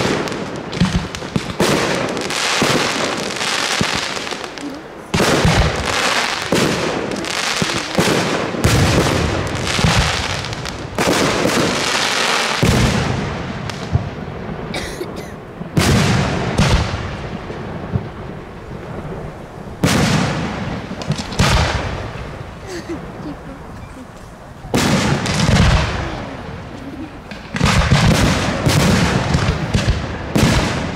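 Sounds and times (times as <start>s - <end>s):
fireworks launching and bursting: 0.0s - 30.9s.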